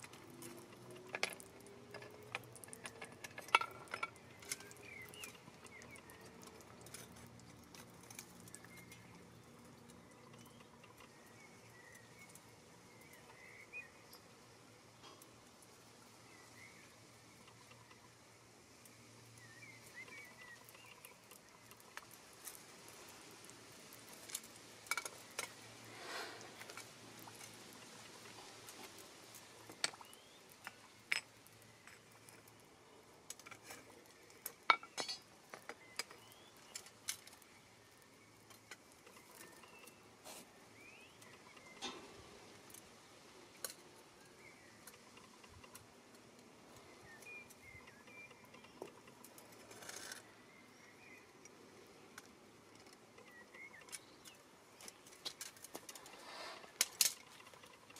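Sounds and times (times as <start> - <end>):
bird chirps: 4.3 - 6.4, 19.3 - 21.9, 46.8 - 49.2.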